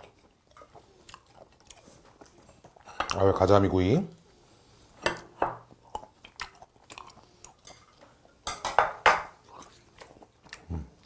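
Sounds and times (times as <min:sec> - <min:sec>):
close chewing: 0:00.0 - 0:03.4, 0:05.6 - 0:08.5, 0:09.2 - 0:11.0.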